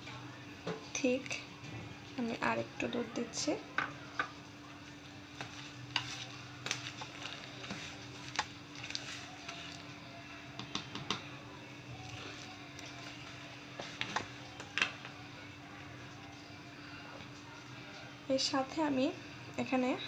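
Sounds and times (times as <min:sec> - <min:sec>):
faint steady hum: 0:00.0 - 0:20.0
soft wet stirring: 0:03.3 - 0:18.3.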